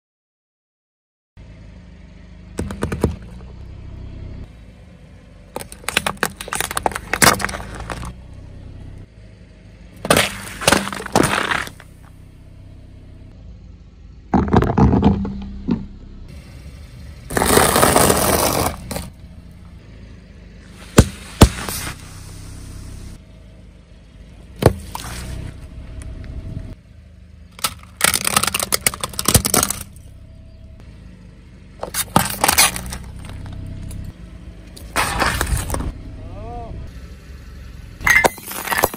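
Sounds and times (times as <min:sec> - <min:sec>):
low car rumble: 0:01.4 - 0:38.9
tyre crushing plastic: 0:05.6 - 0:08.1, 0:10.0 - 0:11.9, 0:27.6 - 0:29.9, 0:31.8 - 0:33.4.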